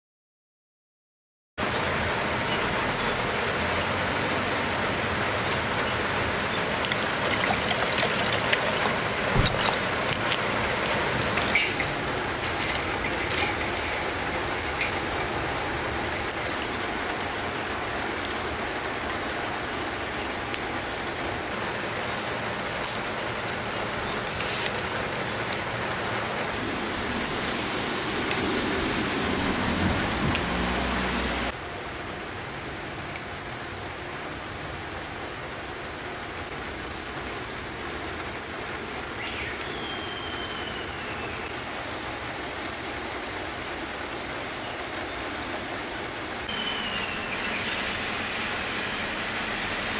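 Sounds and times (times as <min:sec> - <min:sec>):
steady rain falling: 0:01.6 - 0:49.9
wood fire crackling: 0:05.3 - 0:30.8.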